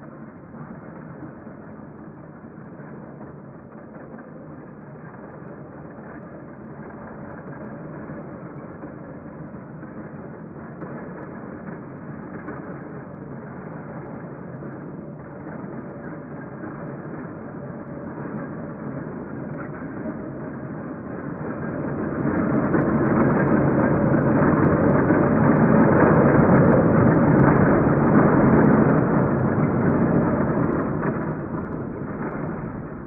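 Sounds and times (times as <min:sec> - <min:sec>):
train rumbling: 0:22.1 - 0:33.0.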